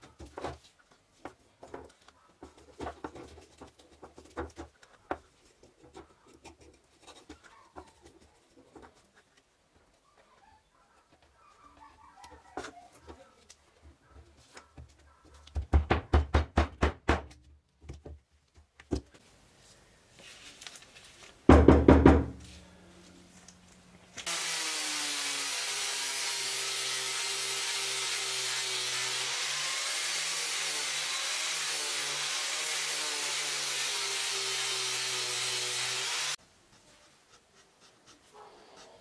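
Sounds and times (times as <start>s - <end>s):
paper rustling: 20.2s - 21.4s
angle grinder sanding wood: 24.2s - 36.4s.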